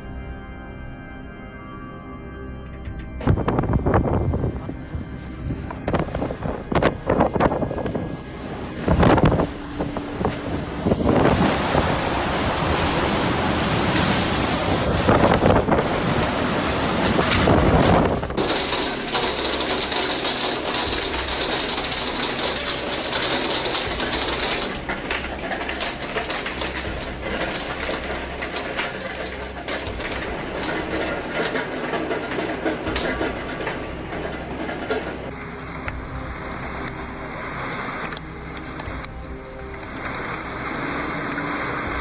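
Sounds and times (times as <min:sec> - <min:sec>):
wind buffeting microphone: 0:03.2 - 0:23.0
hailstones pelting glass and wood: 0:08.8 - 0:42.0.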